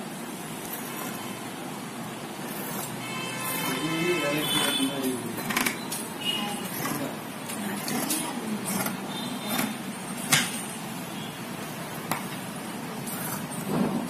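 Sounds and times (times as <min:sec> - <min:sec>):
steady background noise: 0:00.0 - 0:14.0
scissors cutting cloth: 0:00.6 - 0:01.2, 0:02.4 - 0:10.6, 0:13.0 - 0:13.7.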